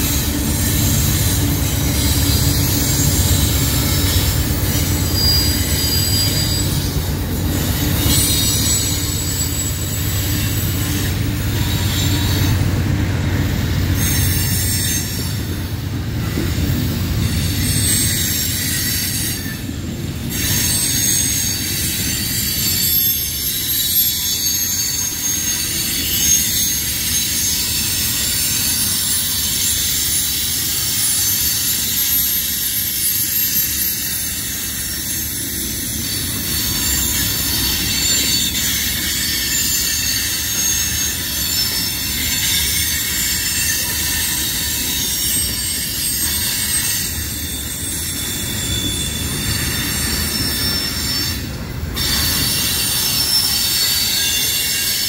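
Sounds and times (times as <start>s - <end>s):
low rumble of wheels on track: 0.0s - 55.0s
train wheels screeching on rails: 0.0s - 55.0s.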